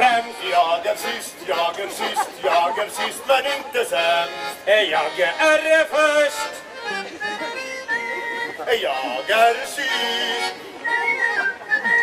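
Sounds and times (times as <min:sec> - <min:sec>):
man singing: 0:00.0 - 0:06.6, 0:08.6 - 0:10.6.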